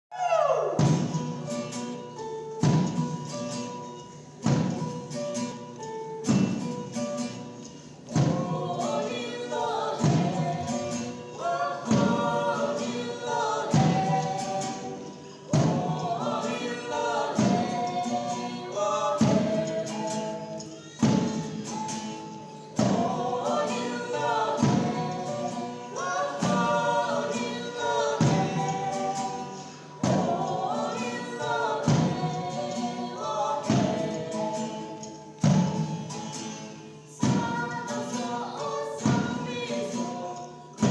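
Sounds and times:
strummed acoustic guitars: 0:00.5 - 0:40.9
woman and others singing: 0:08.1 - 0:40.9
heavy drum beat: 0:15.5 - 0:16.6.

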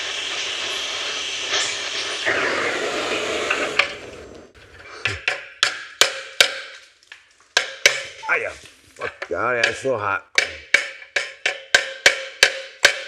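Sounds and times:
torch hissing: 0:00.0 - 0:05.3
sharp metal knocks: 0:05.1 - 0:06.8, 0:07.6 - 0:08.2, 0:09.6 - 0:13.0.

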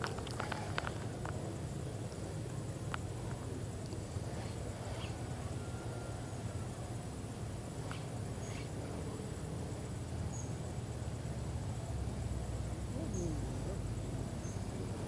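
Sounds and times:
faint clicks: 0:00.0 - 0:01.4.

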